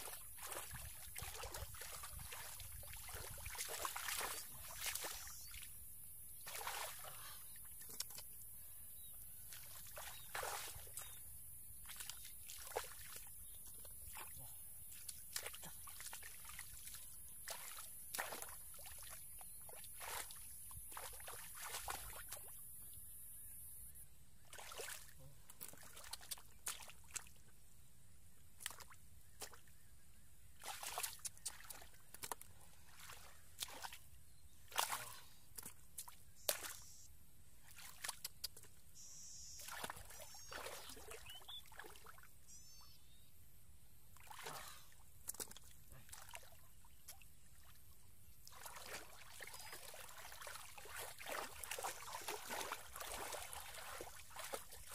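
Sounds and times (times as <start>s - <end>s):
hands splashing in muddy water: 0.0s - 5.8s, 6.4s - 8.3s, 9.4s - 11.2s, 11.8s - 22.6s, 24.5s - 27.4s, 28.6s - 29.7s, 30.6s - 34.1s, 34.7s - 36.9s, 37.6s - 38.7s, 39.6s - 42.2s, 44.2s - 47.8s, 48.4s - 54.9s.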